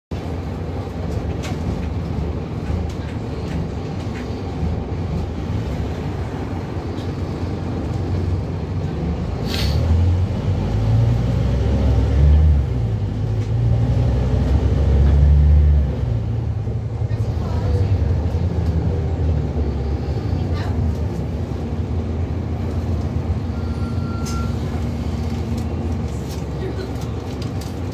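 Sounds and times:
bus diesel engine: 0.1s - 27.9s
air brake hiss: 9.4s - 9.9s.

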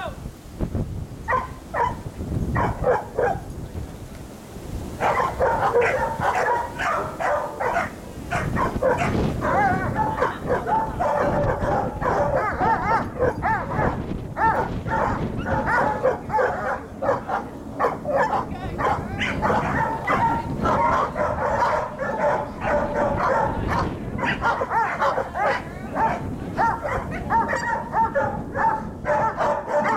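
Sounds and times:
large dog barking: 1.3s - 3.5s, 5.0s - 29.9s
dog whining and yelping: 26.6s - 28.2s.

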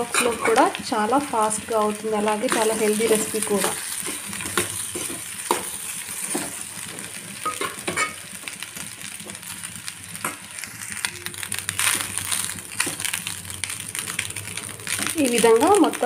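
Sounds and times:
utensil scraping pan: 0.0s - 0.6s
food sizzling in pan: 0.0s - 16.0s.

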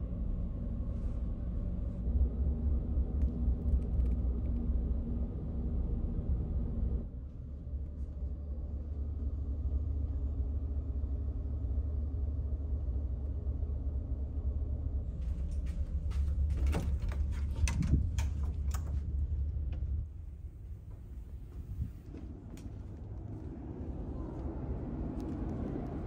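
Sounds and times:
low machinery hum: 0.0s - 26.0s
door clicks and knocks: 16.5s - 19.1s.

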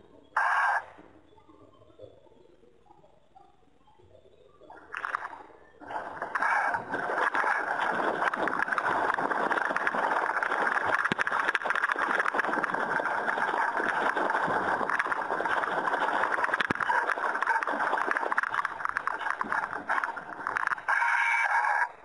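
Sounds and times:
water rushing along boat hull: 6.3s - 20.8s.

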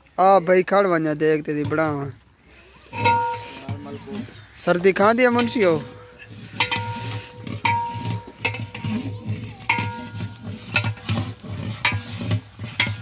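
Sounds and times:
metal ladle scraping a pot: 2.7s - 4.6s, 5.2s - 13.0s
metal pot ringing: 2.9s - 3.7s, 5.3s - 12.2s.

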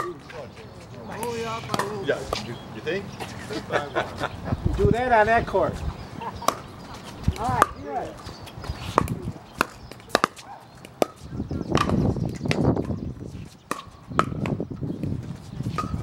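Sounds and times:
paddles striking pickleball: 0.0s - 0.4s, 1.2s - 2.6s, 6.4s - 13.0s, 13.7s - 16.0s.

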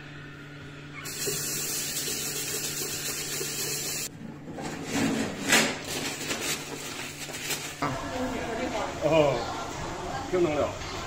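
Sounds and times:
tap water running into basin: 1.0s - 4.1s
paper towel rustling: 5.3s - 8.0s.

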